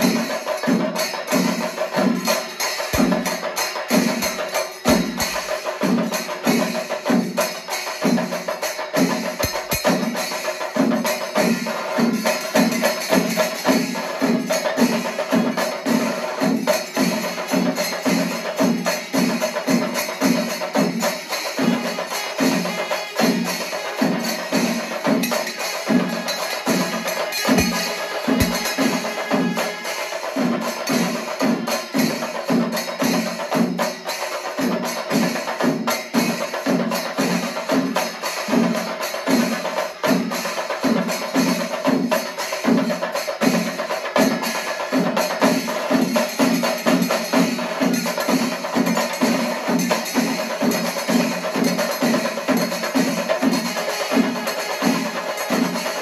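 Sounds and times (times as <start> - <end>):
cymbals clashing: 0.0 - 56.0
bass drums beating: 4.3 - 5.5, 27.5 - 28.9.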